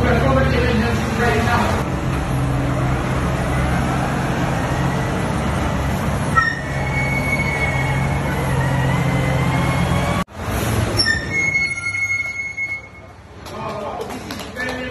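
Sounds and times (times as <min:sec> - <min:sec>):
truck engine drone: 0:00.0 - 0:14.9
thin high squeal: 0:06.3 - 0:10.1, 0:11.0 - 0:13.1.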